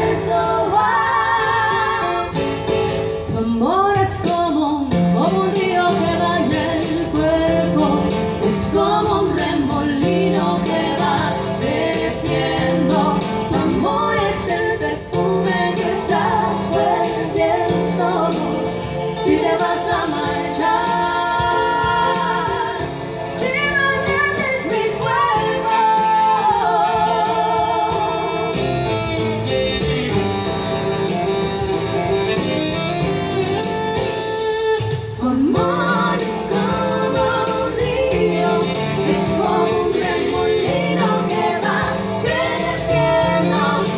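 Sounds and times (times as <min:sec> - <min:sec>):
live band music: 0:00.0 - 0:43.9.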